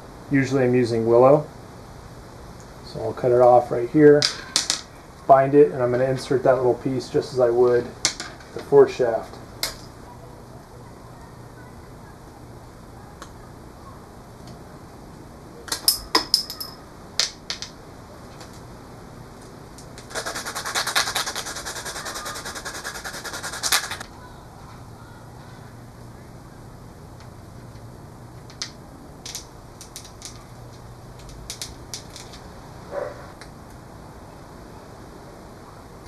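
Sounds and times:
tools clicking and tapping: 15.7 - 17.7
tool rasping wood: 20.1 - 24.0.

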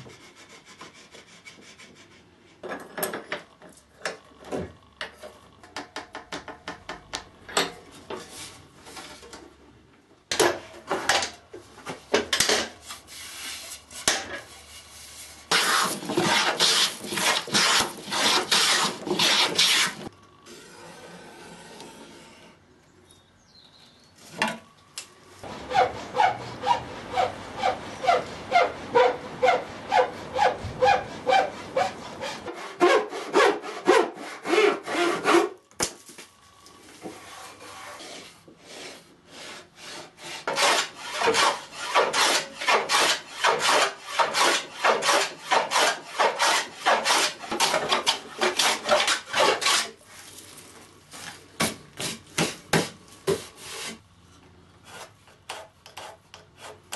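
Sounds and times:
hand saw cutting wood: 15.4 - 22.5, 25.4 - 35.6, 37.2 - 50.0, 54.8 - 56.9.

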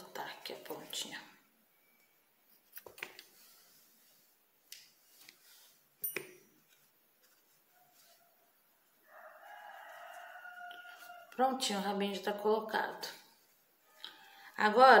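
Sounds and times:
rooster crowing faintly: 7.7 - 11.5.

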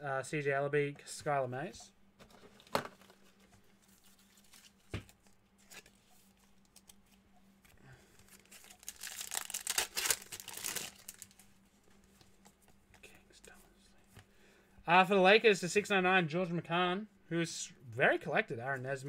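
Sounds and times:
foil wrapper tearing and crinkling: 8.3 - 11.4.

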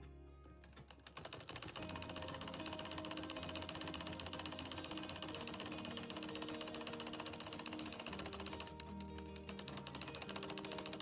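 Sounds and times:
background music: 0.0 - 11.0
sewing machine stitching: 0.7 - 11.0.

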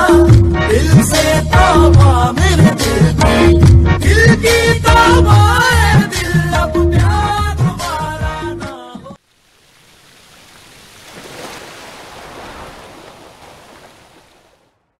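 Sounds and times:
song with singing: 0.0 - 9.2
rushing water: 9.2 - 15.0.

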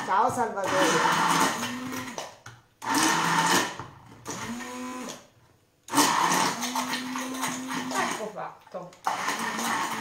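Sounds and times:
immersion blender motor whine: 0.6 - 2.2, 2.8 - 5.3, 5.9 - 8.3, 9.0 - 10.0.

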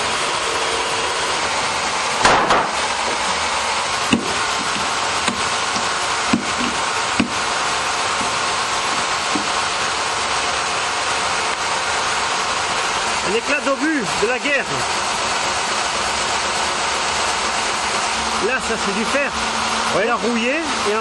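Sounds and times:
steady machine noise: 0.0 - 21.0
hatchet chopping into wood: 2.2 - 3.2, 4.1 - 7.4.

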